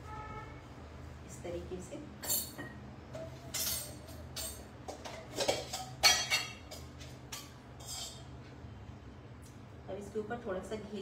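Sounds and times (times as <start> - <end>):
metal utensils clinking: 2.2 - 2.8, 3.5 - 8.3.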